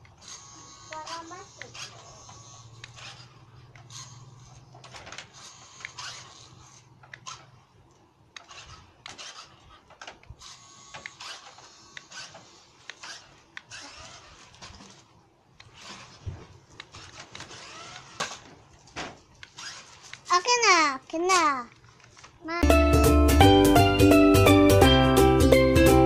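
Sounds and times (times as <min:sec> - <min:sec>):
gears and wheels rattling: 0:00.0 - 0:07.6, 0:08.4 - 0:20.6
toy truck motor whirring: 0:00.0 - 0:07.6, 0:08.4 - 0:21.5.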